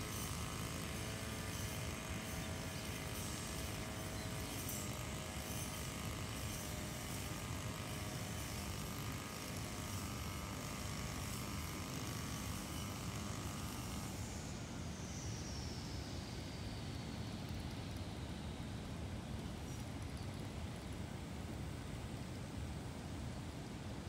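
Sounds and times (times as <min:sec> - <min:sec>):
brush cutter engine running: 0:00.0 - 0:15.1
steady hiss: 0:00.0 - 0:24.0.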